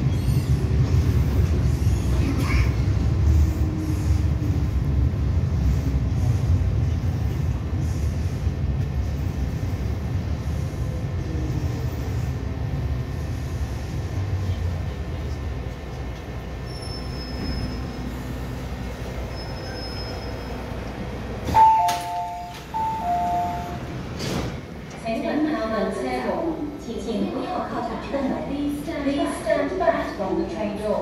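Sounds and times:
train rumbling to a stop: 0:00.0 - 0:31.0.

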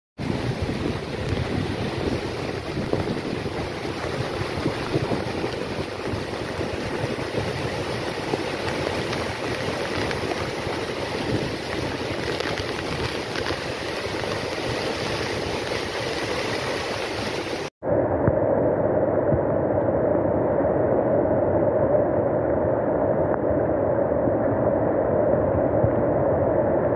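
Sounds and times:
waterfall rushing: 0:00.5 - 0:17.7.

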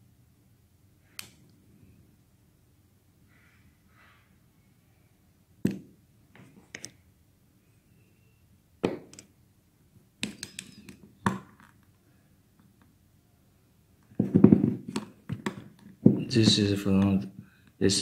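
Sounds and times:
metal parts knocking on table: 0:14.2 - 0:16.6.

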